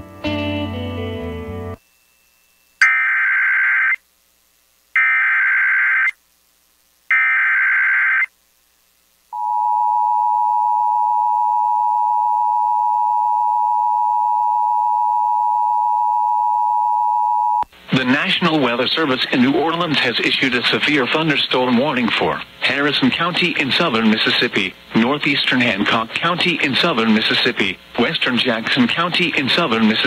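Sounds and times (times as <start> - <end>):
harsh electronic data warble: 2.8 - 4.0.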